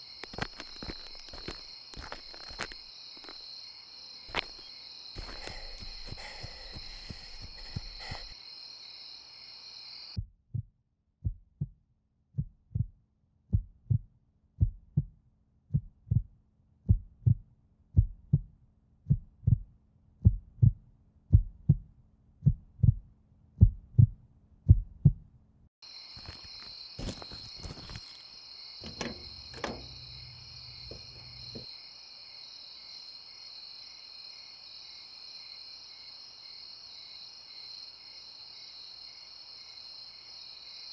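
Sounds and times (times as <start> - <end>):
crickets chirping at night: 0.0 - 10.2, 25.8 - 40.9
heartbeat thumps: 5.2 - 8.3, 10.4 - 11.7, 12.4 - 12.9, 13.5 - 14.0, 14.6 - 15.1, 15.7 - 16.3, 16.9 - 17.4, 18.0 - 18.5, 19.1 - 23.0, 23.6 - 25.2, 28.8 - 31.6
clicks: 28.8 - 31.6.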